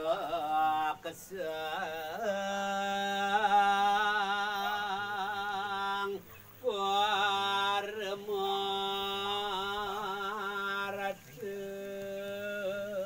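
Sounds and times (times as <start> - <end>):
man chanting: 0.0 - 13.0.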